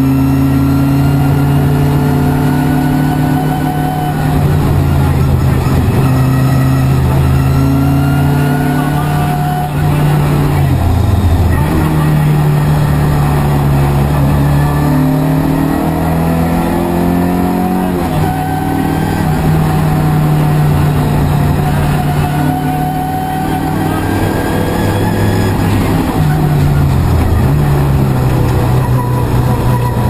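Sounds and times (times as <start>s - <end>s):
rally car engine revving: 0.0s - 30.0s.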